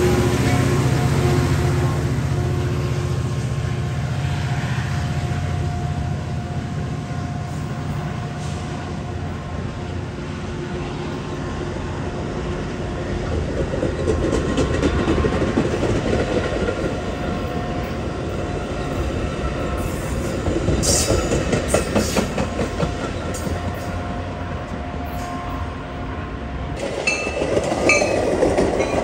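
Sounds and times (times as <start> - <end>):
train rumbling past: 0.0 - 29.0
train wheels clickety-clack: 13.0 - 25.3, 26.8 - 29.0.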